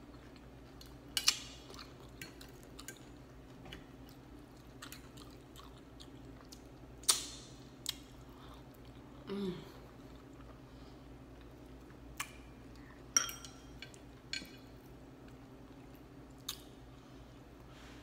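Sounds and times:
chewing close to microphone: 0:04.0 - 0:06.9.

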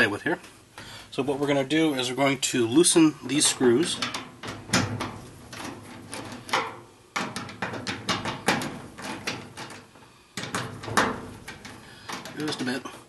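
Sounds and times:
power cord against sheet metal: 0:03.3 - 0:13.0.

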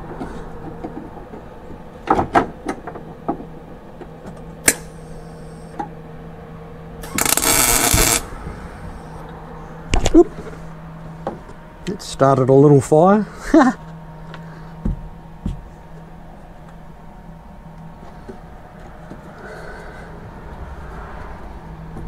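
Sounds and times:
steady background hum: 0:00.0 - 0:22.0
welder arc crackling: 0:07.0 - 0:08.3.

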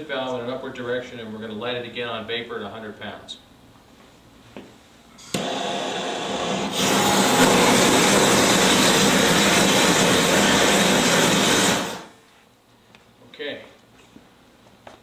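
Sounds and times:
gas hissing from valve: 0:05.2 - 0:12.1
burning gas flame rushing: 0:05.2 - 0:12.2.

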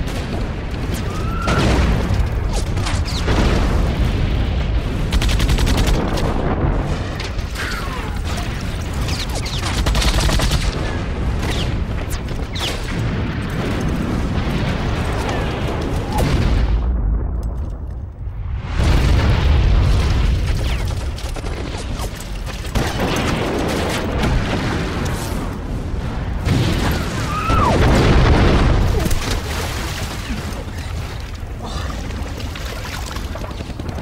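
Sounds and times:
shell explosions: 0:00.0 - 0:29.7
deep rumble: 0:12.9 - 0:21.8.

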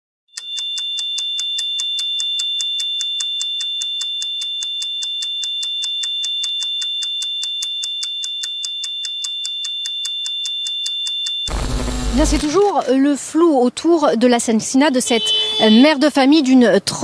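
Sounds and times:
rapid electronic ticking: 0:00.5 - 0:12.7
high-pitched electronic tone: 0:11.5 - 0:12.6.

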